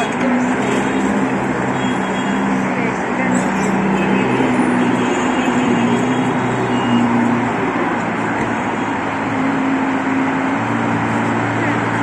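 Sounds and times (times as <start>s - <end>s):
rumble of passing cars: 0.0s - 12.0s.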